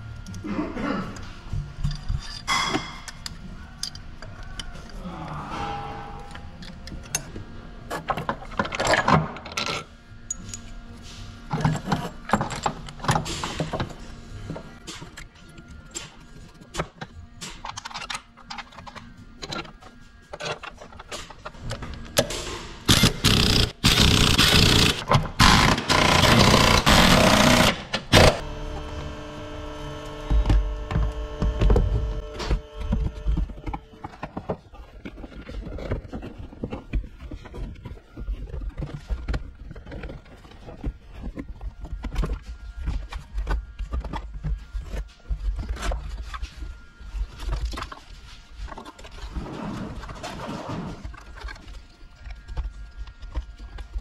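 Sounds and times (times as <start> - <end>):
powered ratchet running: 22.9 - 28.7.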